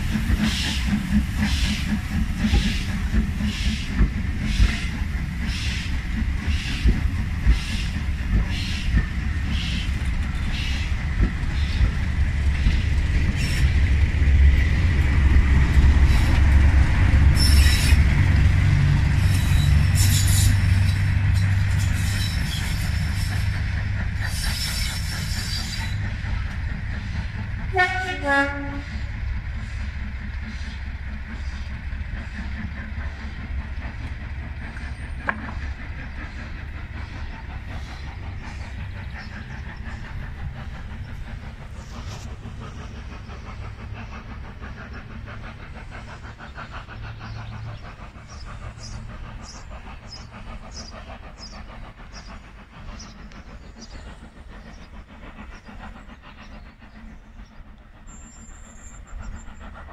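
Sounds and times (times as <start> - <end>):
diesel locomotive rumbling: 0.0 - 59.9
train wheels clicking over rail joints: 0.0 - 59.9
train horn note: 27.7 - 28.9.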